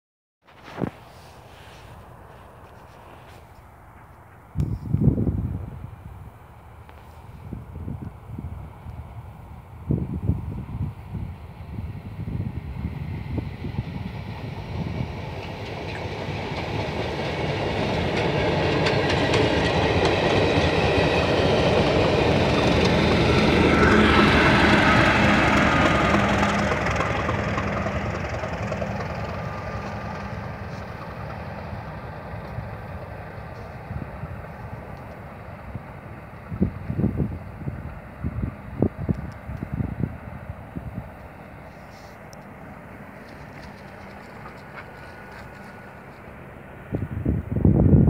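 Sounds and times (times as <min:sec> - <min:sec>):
diesel locomotive engine: 0:00.5 - 0:48.0
wind buffeting microphone: 0:03.9 - 0:48.0
train wheels clicking over rail joints: 0:14.2 - 0:36.5, 0:41.1 - 0:46.5.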